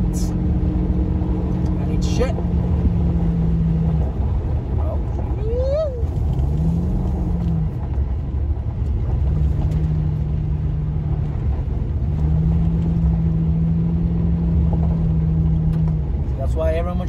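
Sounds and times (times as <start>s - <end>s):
engine hum: 0.0s - 17.0s
tyres rumbling on gravel: 0.0s - 17.0s.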